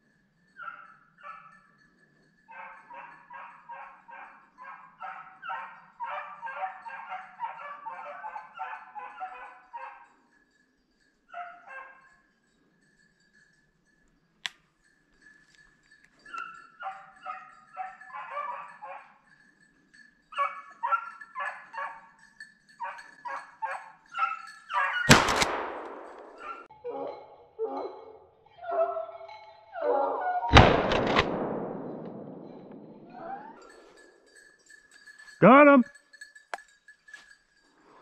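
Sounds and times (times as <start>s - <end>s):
dogs baying: 0.5s - 1.8s, 2.5s - 10.3s, 11.3s - 12.2s, 16.1s - 19.4s, 20.3s - 30.5s
echoing shotgun shot: 25.1s - 26.6s, 30.5s - 33.2s.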